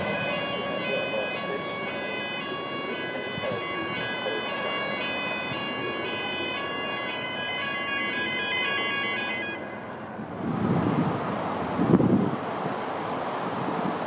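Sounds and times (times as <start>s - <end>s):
diesel locomotive running: 0.0s - 14.0s.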